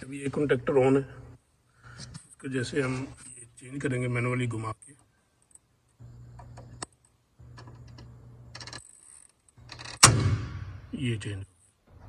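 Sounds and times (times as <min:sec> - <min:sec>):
low hum: 0:06.0 - 0:09.0, 0:09.6 - 0:12.0.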